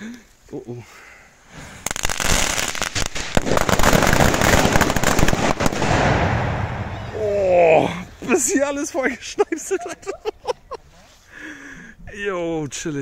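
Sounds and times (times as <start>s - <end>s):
firecrackers crackling: 1.5s - 8.9s.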